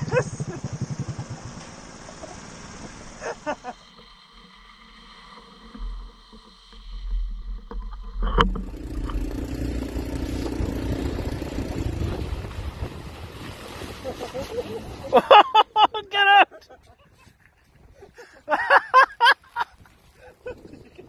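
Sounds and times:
small motorbike engine running: 0.0s - 3.7s, 8.2s - 13.4s
low rumble: 0.0s - 15.1s.

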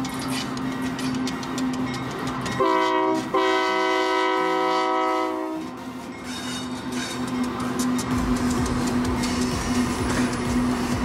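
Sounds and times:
freight train rumbling past: 0.0s - 11.0s
locomotive air horn blasts: 2.6s - 5.8s.

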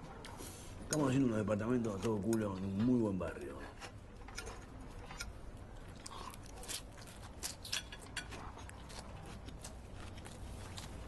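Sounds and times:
low room hum: 0.0s - 11.0s
chewing: 3.4s - 11.0s.

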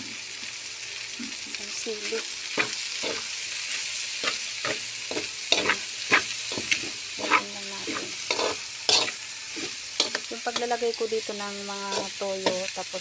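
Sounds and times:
food sizzling in a wok: 0.0s - 13.0s
spatula scraping a pan: 2.5s - 10.8s, 11.7s - 12.7s.

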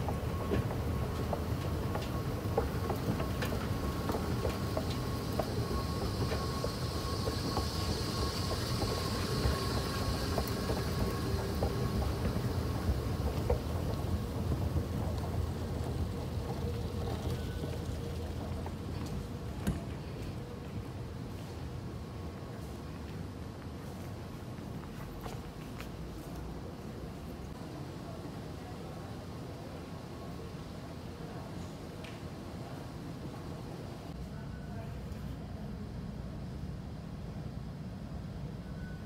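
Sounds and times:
escalator rumble: 0.0s - 20.0s.

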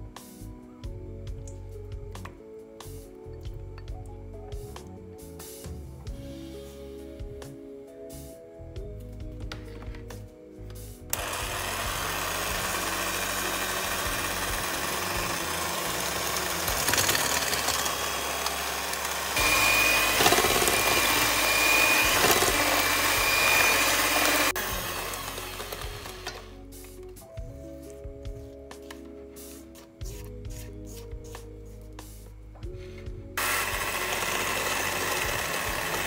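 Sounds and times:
electric stand mixer running: 11.1s - 26.7s, 33.4s - 36.0s.

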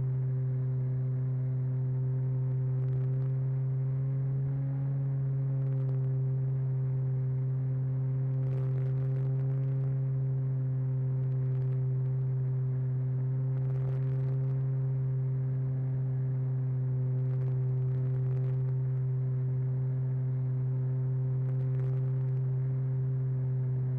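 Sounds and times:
faint crackles: 11.1s - 12.3s, 13.5s - 14.8s, 16.9s - 19.2s, 21.4s - 22.6s.

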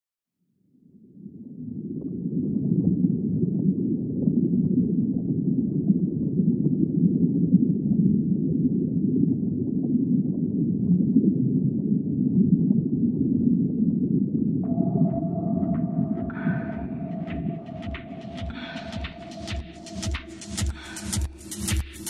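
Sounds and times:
low muffled rumbling drone: 14.6s - 21.9s.

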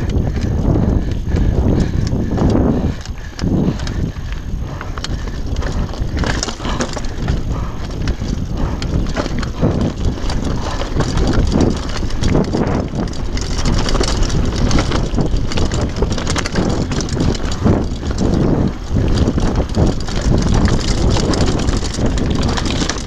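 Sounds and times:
bike clattering and rattling: 0.0s - 23.0s
wind rumble on microphone: 0.0s - 23.0s
tyres crunching on stones: 5.0s - 18.3s.

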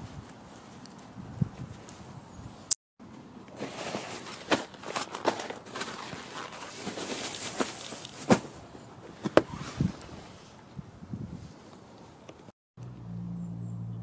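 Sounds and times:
fabric and plastic rustling: 3.5s - 10.6s.

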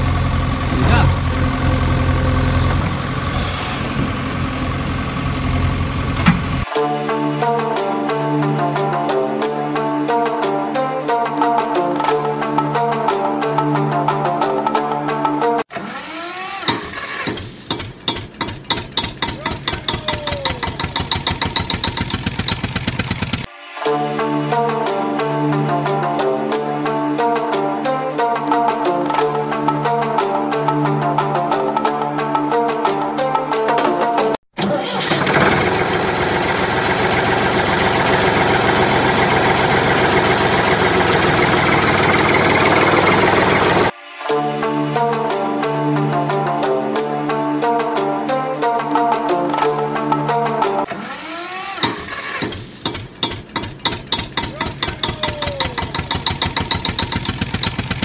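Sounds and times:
diesel tractor engine chugging: 0.0s - 6.6s, 16.7s - 23.5s, 35.0s - 43.9s, 51.8s - 58.0s.

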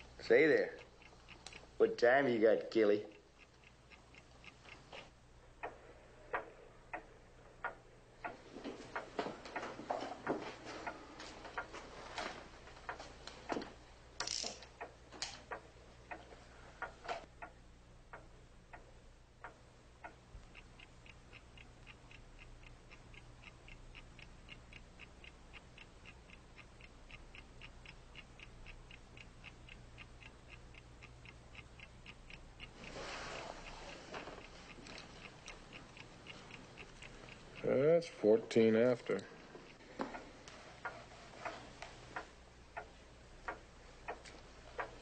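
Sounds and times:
clock ticking: 0.0s - 45.0s
scattered clicks and knocks: 7.6s - 17.3s.

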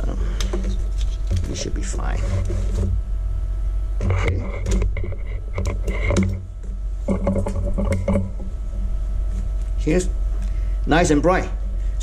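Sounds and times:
steady low hum: 0.0s - 12.0s
connector clicks and cable rattles: 7.1s - 8.4s.

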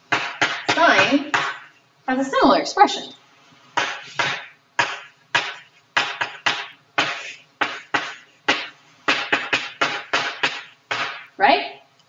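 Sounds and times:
chalk tapping and scraping on blackboard: 0.1s - 1.7s, 3.8s - 11.3s.

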